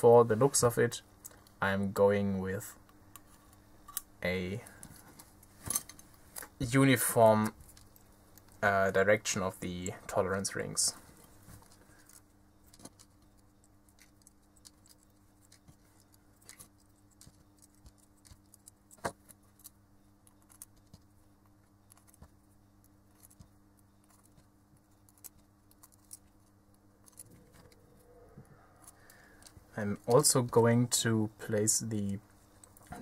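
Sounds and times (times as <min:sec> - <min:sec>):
low steady hum: 0:00.0 - 0:33.0
small clicks and metallic ticks: 0:11.2 - 0:27.8.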